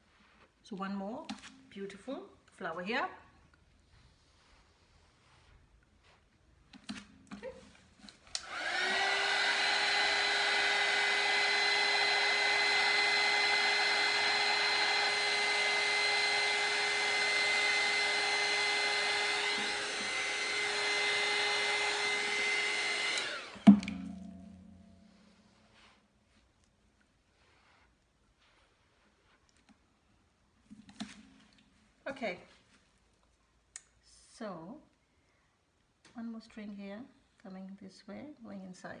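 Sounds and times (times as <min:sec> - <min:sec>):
hair dryer blowing: 0:08.1 - 0:25.3.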